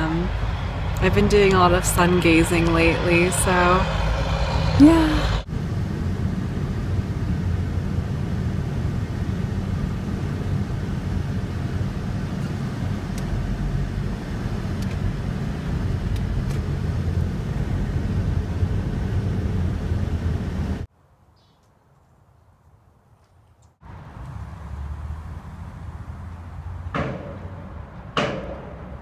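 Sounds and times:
car driving on wet road: 0.2s - 5.8s, 23.8s - 27.9s.

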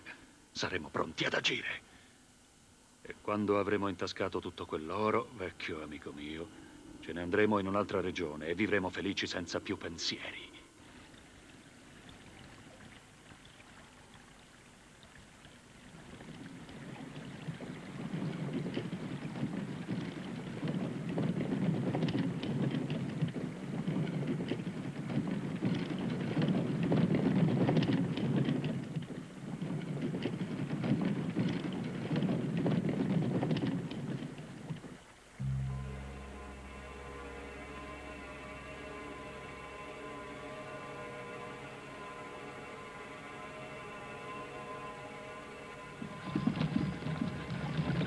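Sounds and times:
wooden cart wheels rumbling: 16.1s - 35.1s.

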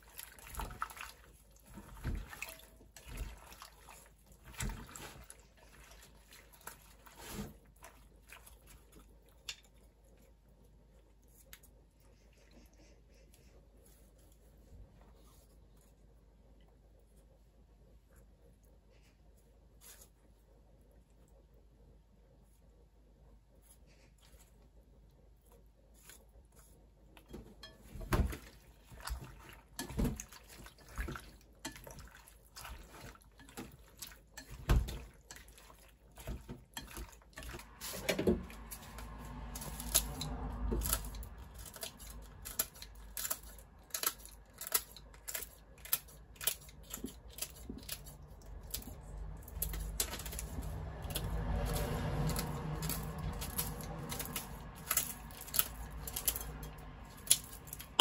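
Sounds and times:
low steady hum: 0.0s - 58.0s
scissors snipping dried peppers: 38.6s - 58.0s.

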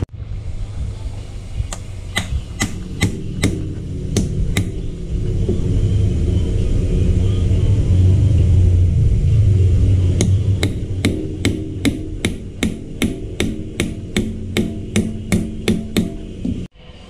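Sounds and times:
low rumble: 0.0s - 17.0s
hammer striking metal: 2.1s - 5.7s, 10.1s - 16.7s.

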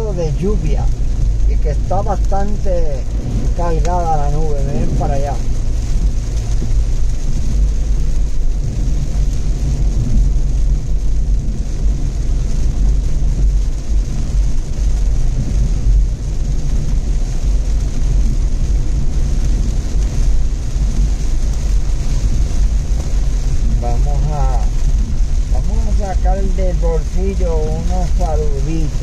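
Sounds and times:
car engine and tyre noise: 0.0s - 29.0s.

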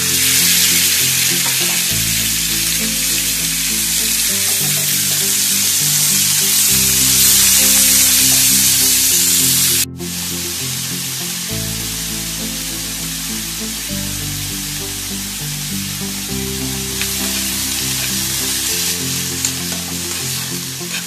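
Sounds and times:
chicken sizzling in hot oil: 0.0s - 10.3s, 16.8s - 21.0s
slow low background music: 0.0s - 21.0s.

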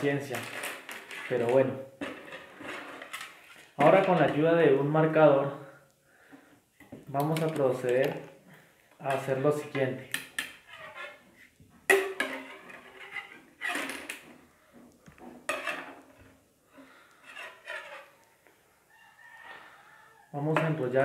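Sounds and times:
wire clicking and rattling: 7.1s - 9.2s.

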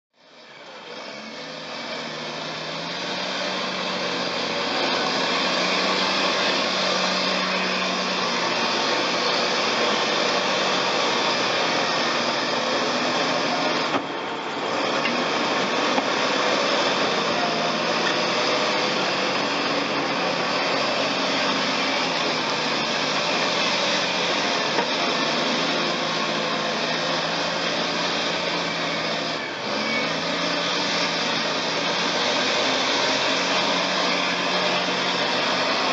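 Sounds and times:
bulldozer diesel engine under load: 0.1s - 35.9s.

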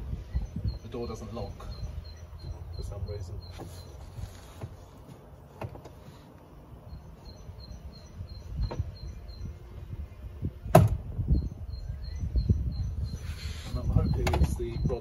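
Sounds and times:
rapid electronic warning beeps: 0.1s - 4.1s, 6.8s - 9.8s, 11.3s - 15.0s.

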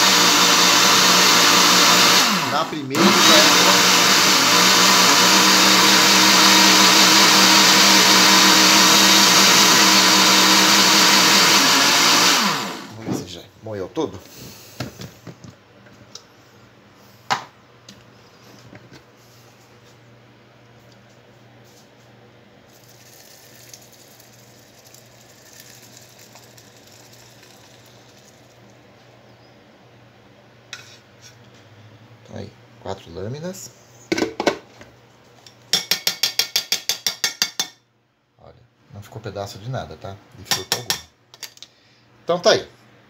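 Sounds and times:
blender motor whining: 0.0s - 13.0s
smoothie pouring and trickling: 22.7s - 28.8s.

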